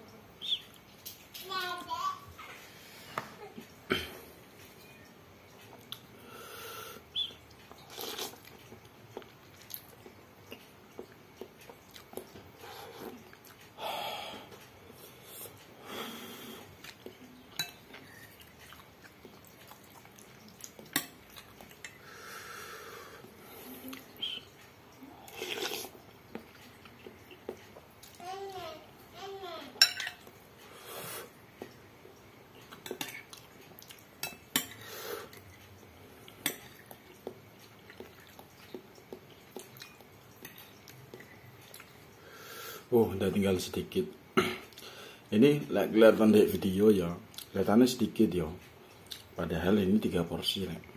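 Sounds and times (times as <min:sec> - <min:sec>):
slurping and chewing noodles: 0:07.5 - 0:13.8, 0:17.9 - 0:28.2, 0:34.7 - 0:42.5
spoon clinking on glass bowl: 0:29.8 - 0:30.2.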